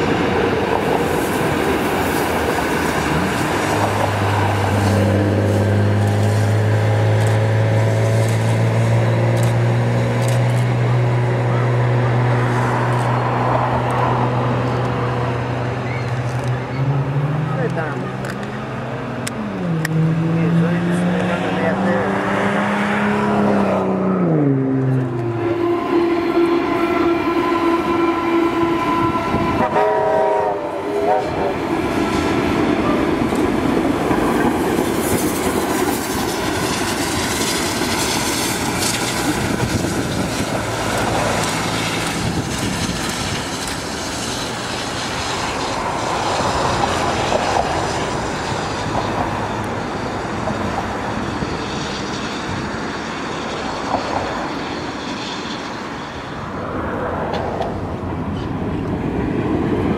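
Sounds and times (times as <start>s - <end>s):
train horn chord: 24.8s - 31.6s.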